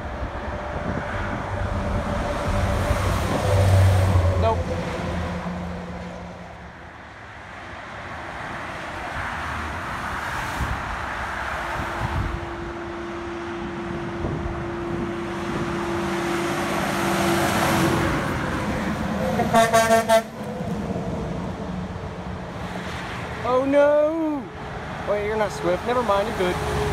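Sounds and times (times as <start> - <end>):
highway traffic passing: 0.0 - 26.9
truck air horn blasts: 19.3 - 20.4.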